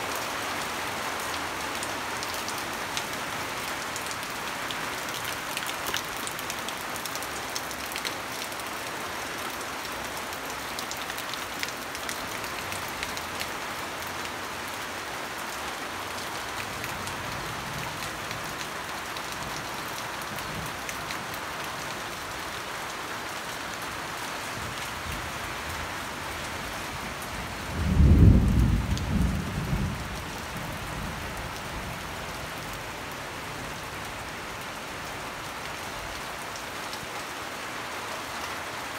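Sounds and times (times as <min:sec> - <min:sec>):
rain falling on foliage: 0:00.0 - 0:38.9
thunder rumbling: 0:27.7 - 0:30.2.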